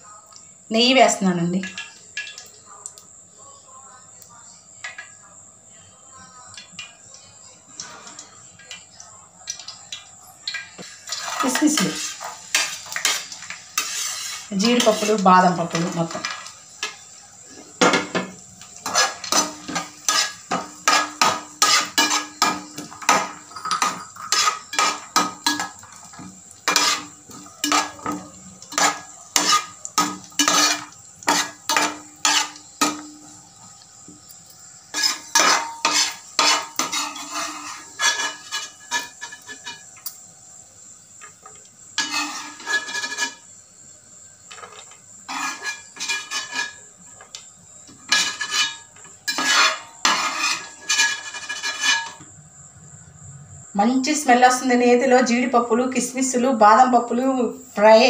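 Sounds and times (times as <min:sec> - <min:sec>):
nuts frying in fat: 0:00.0 - 0:58.0
spatula scraping a metal pan: 0:10.8 - 0:33.4, 0:34.9 - 0:39.8, 0:42.0 - 0:43.5, 0:44.5 - 0:46.9, 0:48.0 - 0:52.3.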